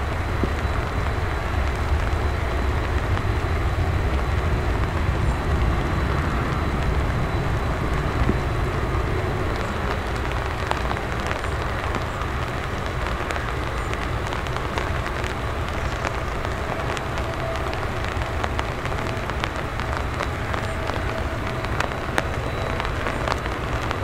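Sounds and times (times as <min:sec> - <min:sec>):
jet engines low rumble: 0:00.0 - 0:24.0
light rain pattering: 0:00.0 - 0:24.0.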